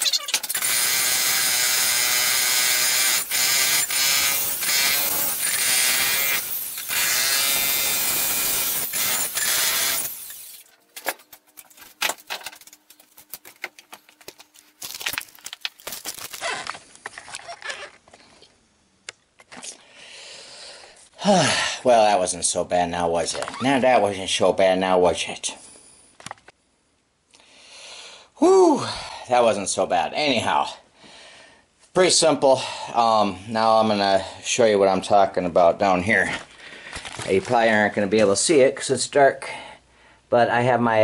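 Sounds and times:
jackhammer hammering concrete: 0.5s - 10.4s.

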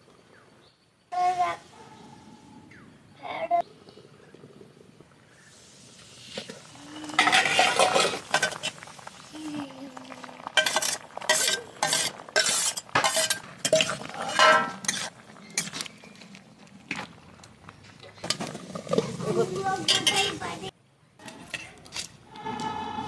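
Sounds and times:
steel lid clinking: 7.2s - 8.6s, 10.6s - 15.8s
steel spatula scraping a plate: 7.2s - 8.6s, 10.6s - 15.8s.

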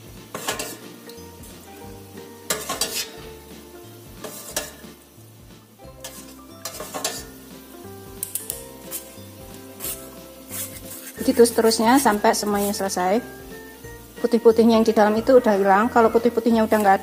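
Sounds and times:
quiet background music: 0.0s - 17.0s
strainer and spoon scraping pot: 0.3s - 0.9s, 2.5s - 3.2s, 4.2s - 4.9s, 6.0s - 7.4s, 8.2s - 13.0s.

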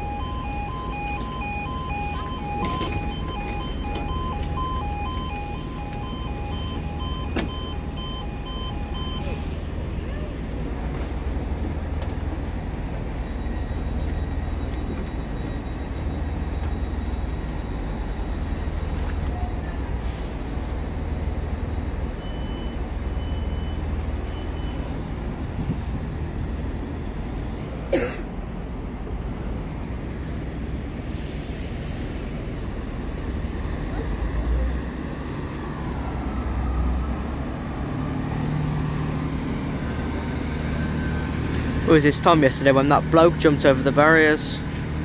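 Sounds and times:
short high beeps: 0.0s - 9.5s
diesel train idling: 0.0s - 45.0s.

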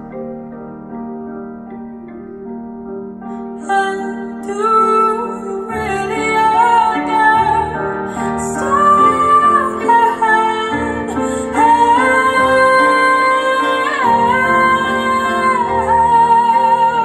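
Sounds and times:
woman singing long held notes: 3.6s - 17.0s.

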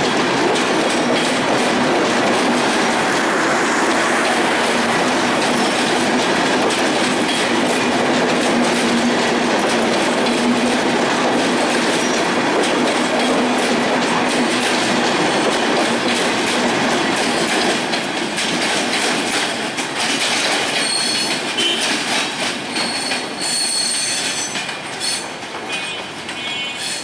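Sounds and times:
train wheels rumbling and clicking: 0.0s - 27.0s
high-pitched wheel squeal: 22.9s - 25.2s.

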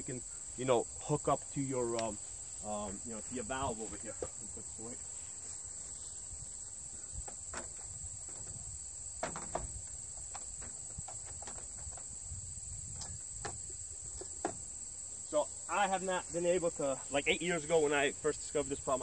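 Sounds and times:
crickets chirring: 0.0s - 19.0s
soft clicks and knocks: 7.2s - 12.2s.

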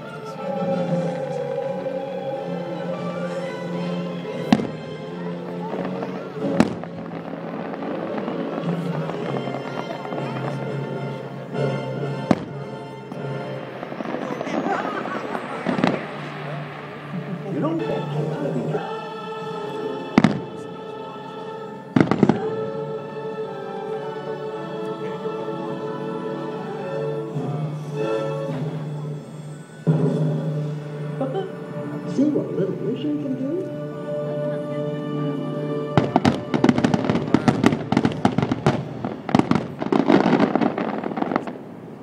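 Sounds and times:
music with sustained chords: 0.0s - 42.0s
fireworks bangs and crackle: 4.3s - 18.9s, 20.1s - 20.6s, 22.0s - 22.6s, 36.0s - 42.0s.

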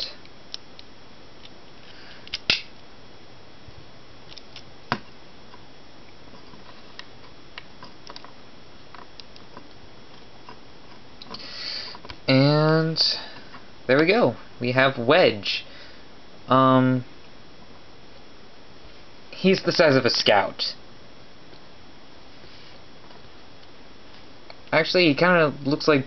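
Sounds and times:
faint steady hiss: 0.0s - 26.0s
plastic toy clicks and snaps: 2.3s - 2.7s.

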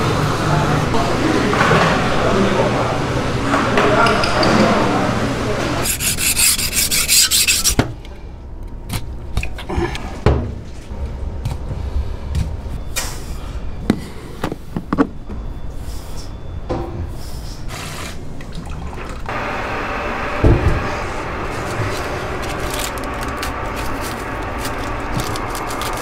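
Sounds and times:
knife scraping on whetstone: 5.8s - 7.8s.

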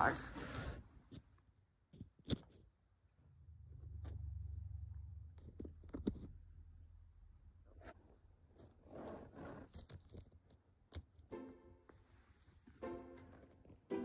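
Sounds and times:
scratchy rustle on cloth: 0.2s - 1.1s, 8.6s - 9.8s
low rumble: 3.3s - 7.4s.

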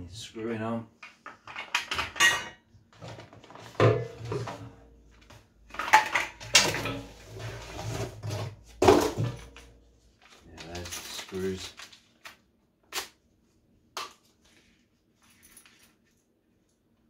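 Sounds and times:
plastic parts clattering in metal drum: 1.3s - 4.8s, 5.7s - 9.7s, 10.3s - 12.0s.

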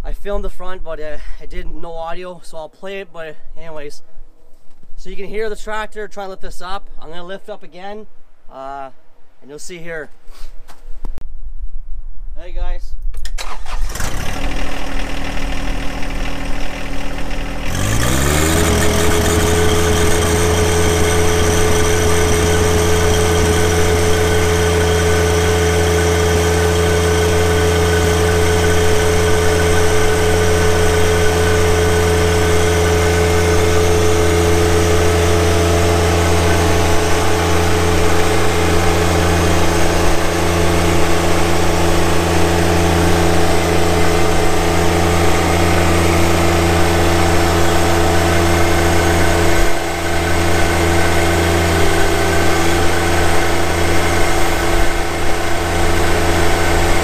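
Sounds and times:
tractor diesel engine revving: 13.4s - 57.0s.

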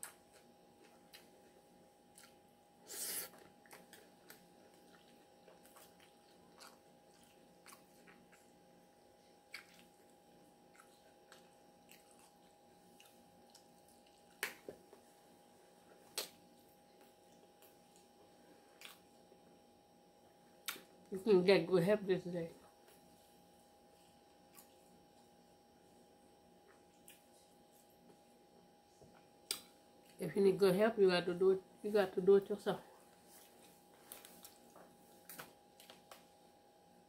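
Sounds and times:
mouth clicks of chewing: 9.5s - 9.9s.

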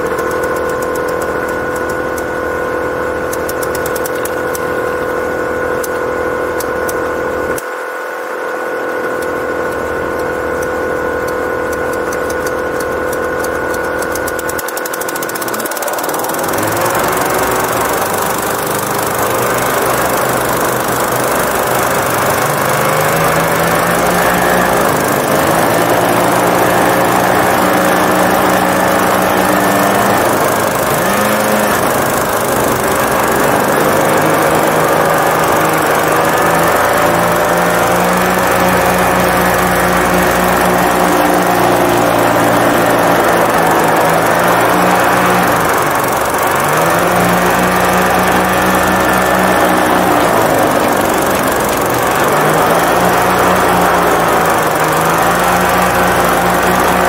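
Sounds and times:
hovercraft engine: 0.0s - 57.0s
rush of fan air: 14.5s - 57.0s.

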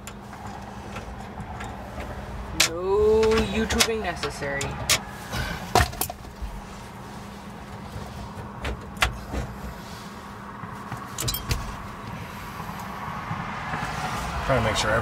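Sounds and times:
hand tools clicking and tapping: 0.0s - 5.0s.

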